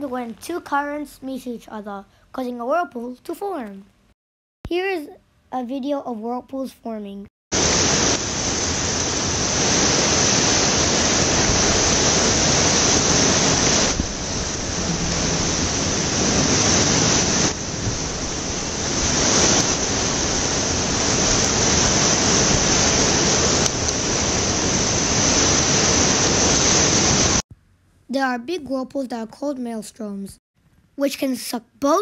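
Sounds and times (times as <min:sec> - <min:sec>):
water swirling and hissing: 0:07.6 - 0:27.4.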